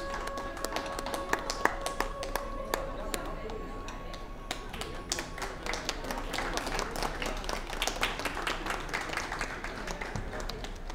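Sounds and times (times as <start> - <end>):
held music note: 0.0 - 6.4
audience clapping: 0.0 - 10.9.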